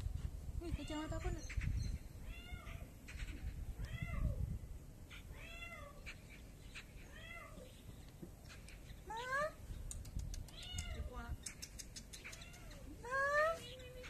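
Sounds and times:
cat meowing: 2.2 - 2.8, 5.3 - 6.0.

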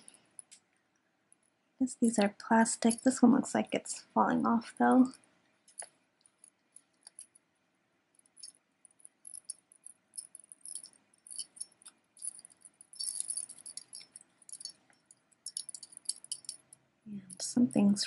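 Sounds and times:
metal necklace clinking: 4.9 - 7.4, 8.1 - 17.7.

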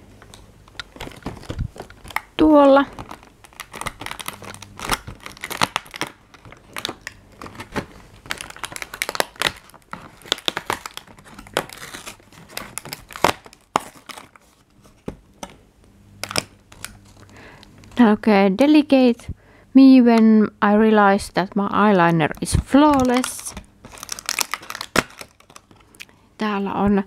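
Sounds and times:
cardboard crinkling and tearing: 0.9 - 15.2, 22.4 - 26.0.

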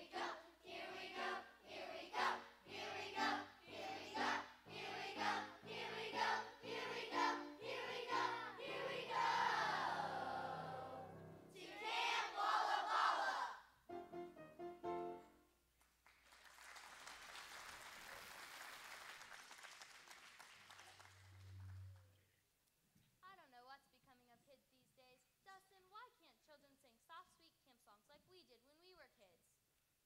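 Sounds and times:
children's choir singing: 0.0 - 13.6
audience applauding: 15.8 - 22.1.

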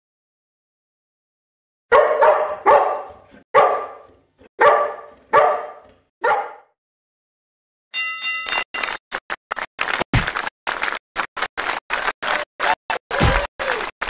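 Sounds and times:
dog barking: 1.9 - 6.8.

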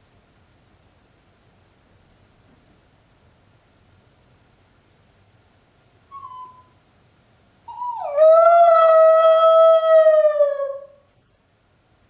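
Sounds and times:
puppy whining: 6.0 - 6.8, 7.7 - 11.0
puppy howling: 6.1 - 6.7, 7.7 - 11.0.

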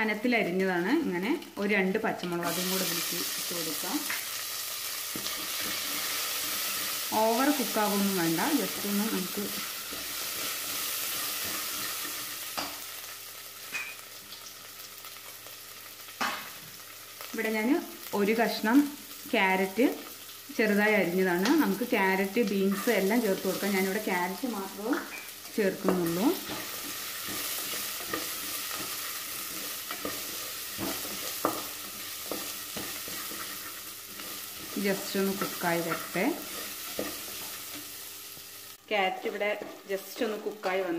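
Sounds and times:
food sizzling in hot oil: 0.0 - 40.9
spatula scraping a pan: 26.0 - 37.9.

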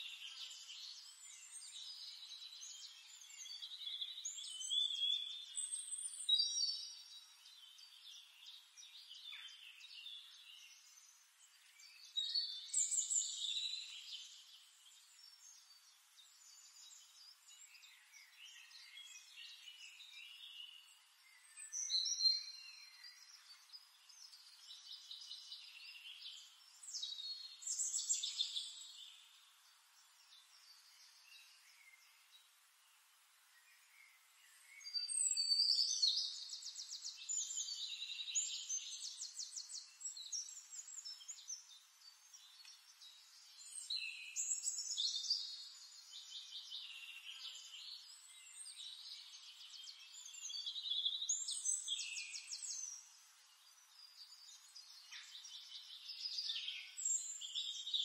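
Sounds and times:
songbird trilling and chirping: 0.0 - 32.2, 34.4 - 58.0.

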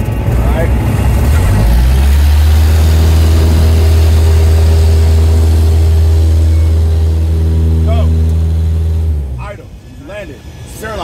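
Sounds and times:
propeller airplane engine drone: 0.0 - 11.0.

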